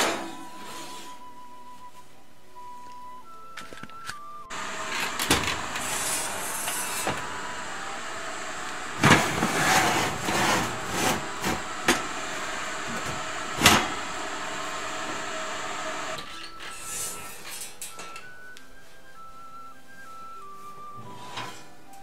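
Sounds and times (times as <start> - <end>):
steady hiss: 4.5 - 16.2.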